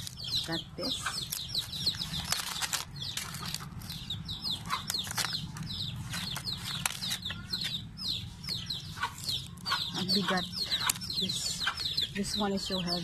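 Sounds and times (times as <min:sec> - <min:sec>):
dry leaves rustling and crackling: 0:00.0 - 0:07.7
birds chirping: 0:00.0 - 0:13.0.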